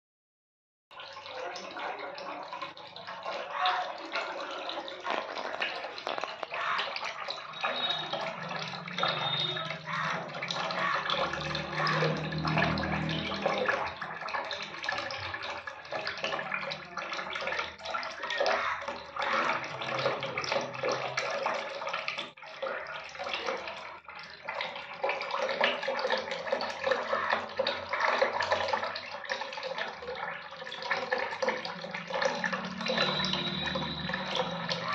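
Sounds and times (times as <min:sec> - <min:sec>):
water splashing in a steel sink: 0:00.9 - 0:34.9.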